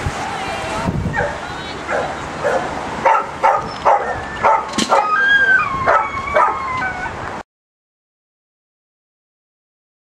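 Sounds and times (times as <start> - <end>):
dog barking in sharp yaps: 2.5 - 5.2
dog whining: 3.5 - 7.2.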